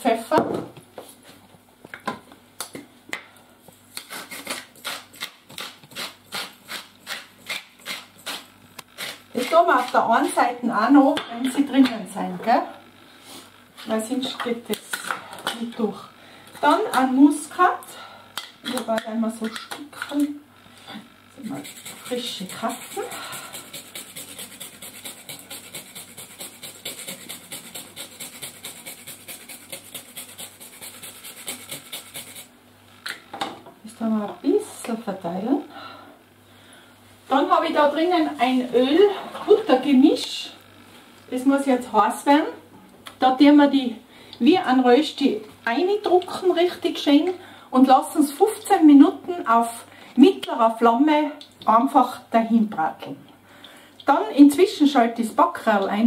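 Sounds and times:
pepper mill grinding: 0:04.0 - 0:10.0, 0:21.4 - 0:32.5.

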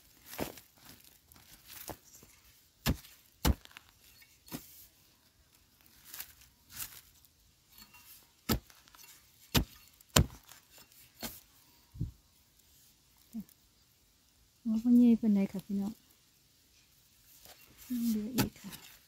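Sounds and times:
digging tool striking stony soil: 0:01.7 - 0:04.8, 0:07.8 - 0:11.5, 0:17.8 - 0:19.0.

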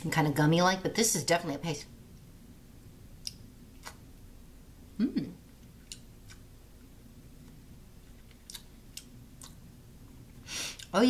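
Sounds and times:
person humming: 0:05.0 - 0:05.4.

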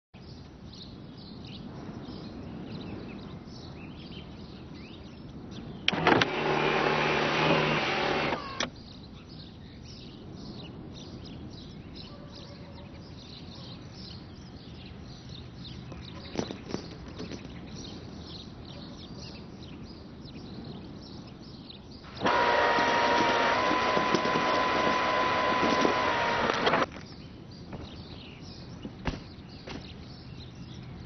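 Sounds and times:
birds chirping: 0:00.2 - 0:31.0
motor click: 0:05.9 - 0:08.7, 0:22.1 - 0:26.9
sunroof motor whirring: 0:05.9 - 0:08.7, 0:22.1 - 0:26.9.

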